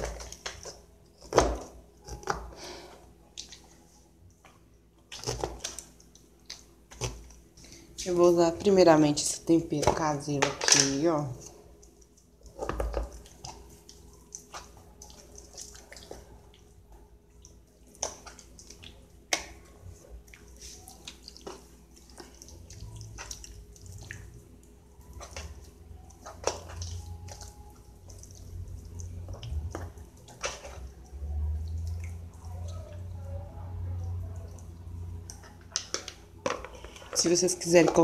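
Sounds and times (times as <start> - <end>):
faint low hum: 0.0 - 38.0
hands rubbing wet paste into meat: 11.1 - 35.7.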